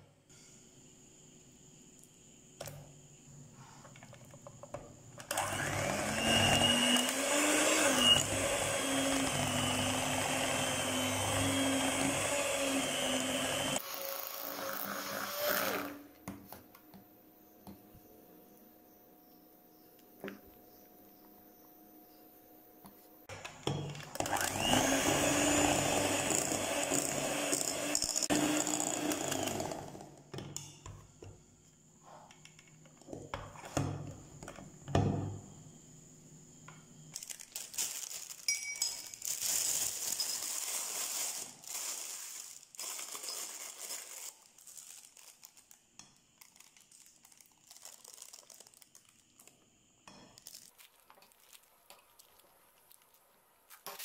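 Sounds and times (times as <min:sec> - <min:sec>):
electric hand mixer running: 0:05.3 - 0:16.0, 0:24.2 - 0:30.1.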